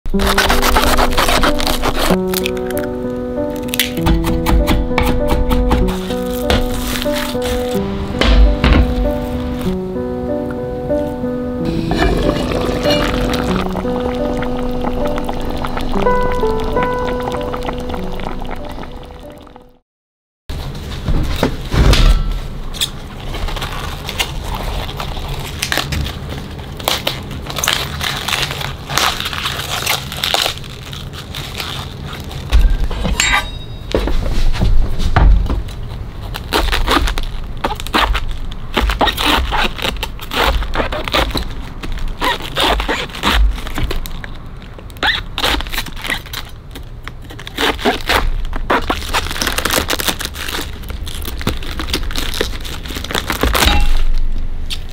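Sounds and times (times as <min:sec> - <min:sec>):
cabbage leaves snapping: 0:00.1 - 0:07.8, 0:23.3 - 0:32.5, 0:36.3 - 0:54.9
knife crunching through cabbage: 0:00.1 - 0:07.8, 0:23.2 - 0:32.8, 0:36.2 - 0:44.4, 0:45.0 - 0:54.9
heavy thumps on cutting board: 0:08.2 - 0:09.0.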